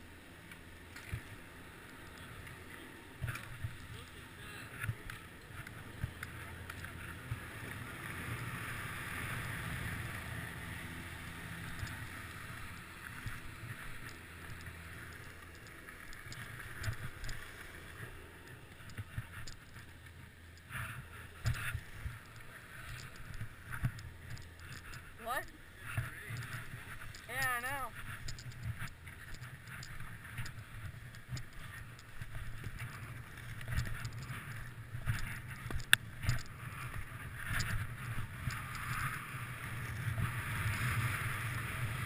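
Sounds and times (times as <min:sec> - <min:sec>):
wind rumble on microphone: 0:01.0 - 0:42.0.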